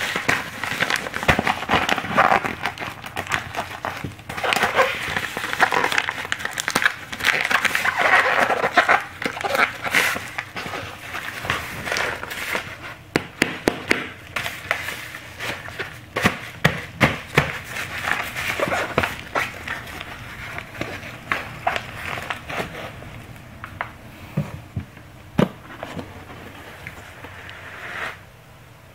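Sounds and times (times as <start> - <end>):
paper envelope crinkling: 0.0 - 13.0, 14.2 - 23.4.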